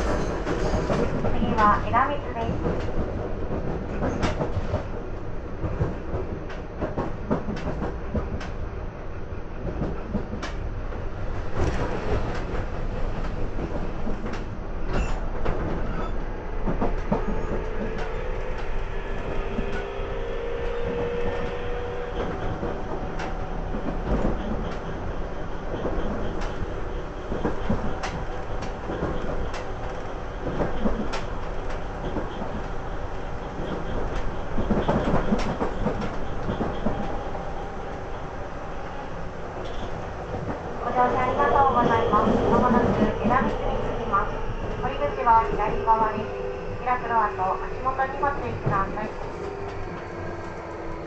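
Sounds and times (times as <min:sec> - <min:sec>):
clacks over rail joints: 0:00.0 - 0:05.0, 0:05.6 - 0:08.6, 0:09.6 - 0:18.8, 0:20.6 - 0:38.3
train wheels rumbling on rails: 0:00.0 - 0:51.0.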